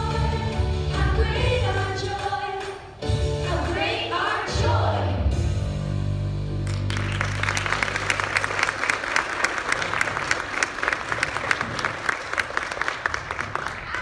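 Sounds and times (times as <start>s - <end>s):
audience applauding: 6.6s - 14.0s.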